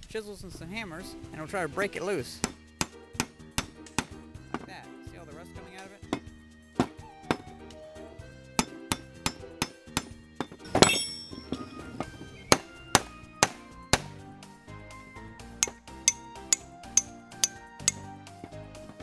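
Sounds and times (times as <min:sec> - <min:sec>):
background music: 0:00.0 - 0:19.0
hammer clanking on metal wrench: 0:08.6 - 0:11.7, 0:15.6 - 0:18.0.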